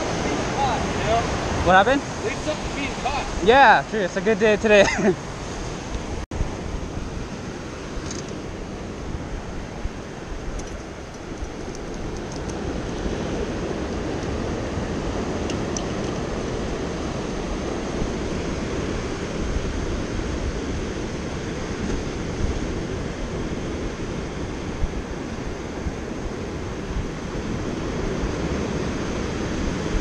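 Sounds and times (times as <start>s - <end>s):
surf breaking over rocks: 0.0s - 9.0s
wind on microphone: 0.0s - 30.0s.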